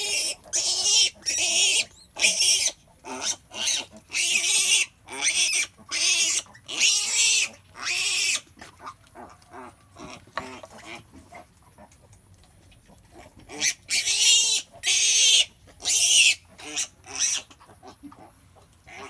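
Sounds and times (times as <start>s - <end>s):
pigs squealing: 0.0s - 11.9s, 13.1s - 18.3s
pigs grunting: 0.0s - 12.2s, 12.8s - 19.0s.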